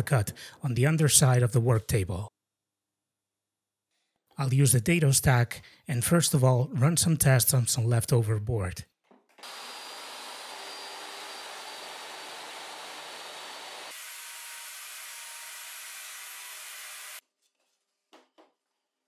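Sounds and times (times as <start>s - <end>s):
table saw cutting board: 9.4s - 17.2s.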